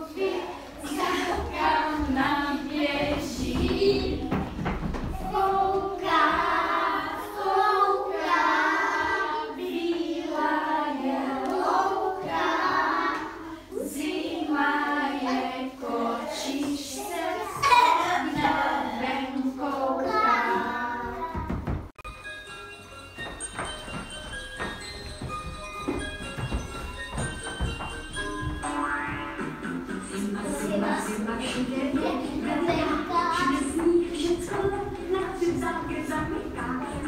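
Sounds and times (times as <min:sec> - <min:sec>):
children singing together: 0:00.0 - 0:21.5, 0:28.6 - 0:37.0.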